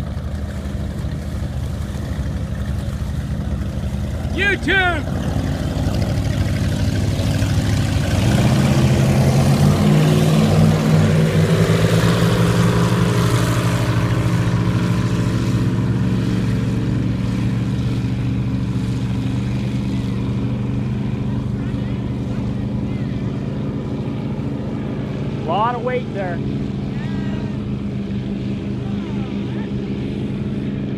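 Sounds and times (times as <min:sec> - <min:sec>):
rushing water and wind: 0:00.0 - 0:21.2
powerboat engines roaring: 0:00.0 - 0:30.9.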